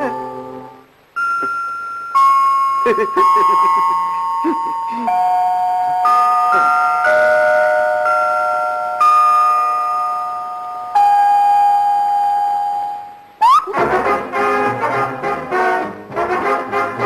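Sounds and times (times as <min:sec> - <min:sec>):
slow bell-like chiming notes: 0:00.0 - 0:13.4.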